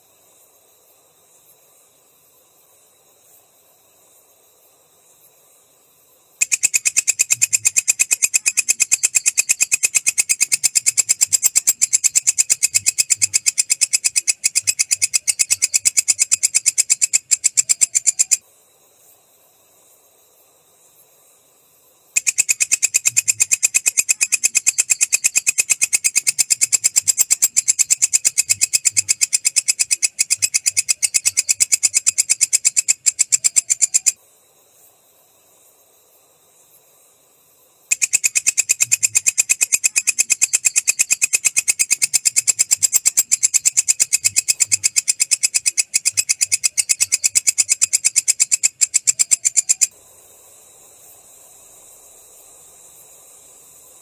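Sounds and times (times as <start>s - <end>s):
katydid ticking song: 6.4s - 18.4s, 22.2s - 34.2s, 37.9s - 49.9s.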